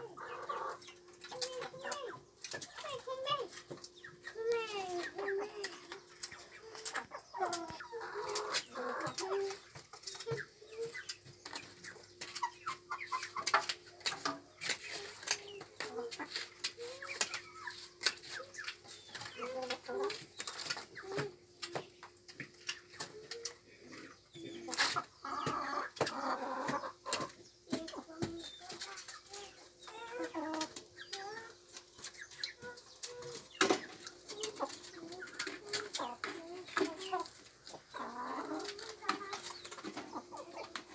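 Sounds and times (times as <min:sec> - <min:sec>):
chickens clucking: 0:00.0 - 0:40.9.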